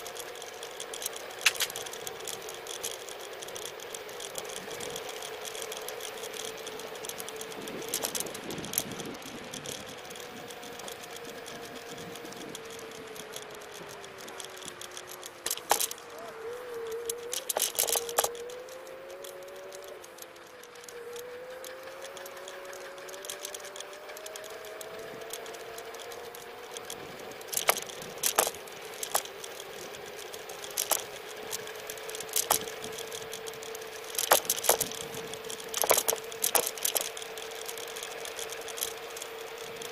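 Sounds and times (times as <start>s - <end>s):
electric scooter motor whining: 0.0s - 39.9s
scooter rattling over bumps: 0.0s - 39.9s.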